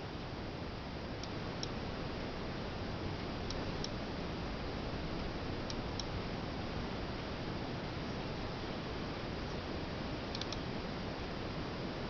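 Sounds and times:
steady hiss: 0.0 - 12.0
faint high-pitched ticks: 10.3 - 10.7.

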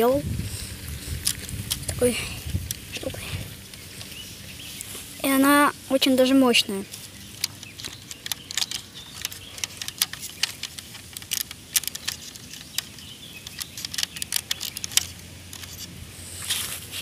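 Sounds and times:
plastic toy bricks clicking: 7.4 - 15.9.

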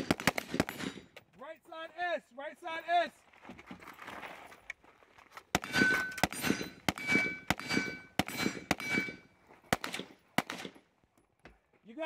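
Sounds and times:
bullet ringing steel target: 0.0 - 1.2, 5.6 - 10.8
rifle shots: 0.0 - 1.2, 5.5 - 10.8.

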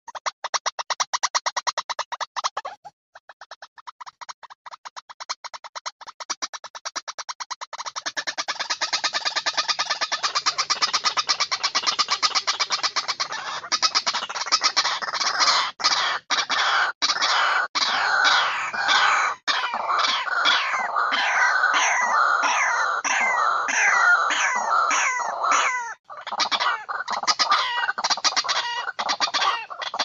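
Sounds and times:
waterhen calling: 7.9 - 30.0.

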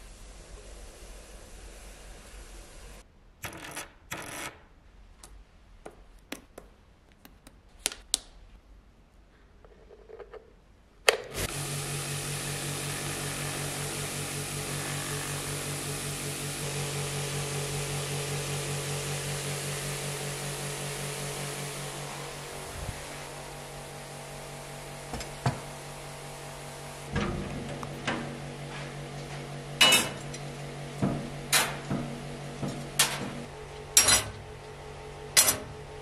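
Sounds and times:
tumbler motor hum with churning: 11.4 - 36.0.

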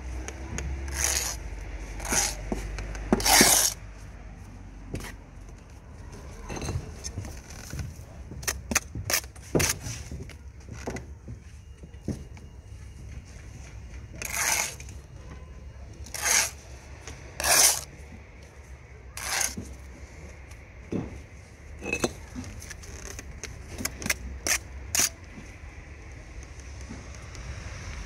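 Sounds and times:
trowel scraping mortar on bricks: 0.8 - 3.8, 14.1 - 15.0, 16.0 - 16.7, 17.3 - 18.0, 19.2 - 19.9, 23.8 - 25.2.

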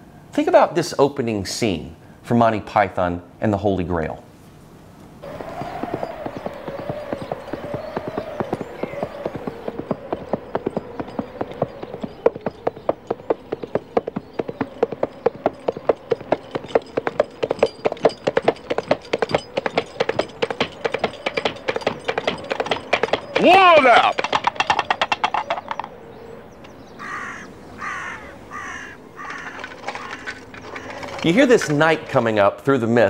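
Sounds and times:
coconut hoofbeat clip-clop: 5.2 - 25.9.

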